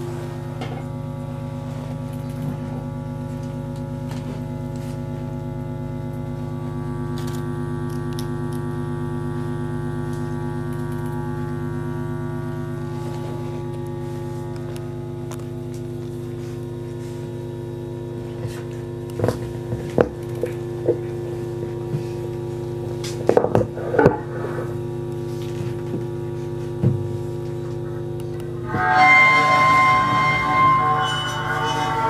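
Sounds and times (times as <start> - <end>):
electronic drone: 27.6 - 32.0.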